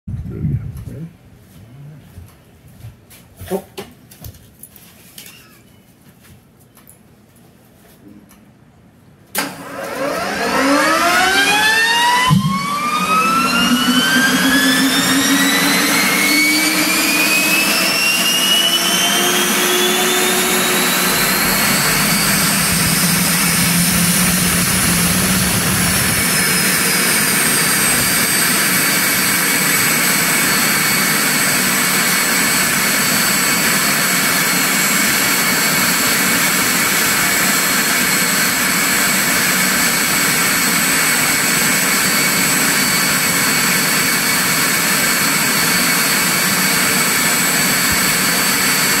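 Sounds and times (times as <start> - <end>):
turbine engine whine: 9.3 - 49.0
rushing roar: 10.2 - 30.0.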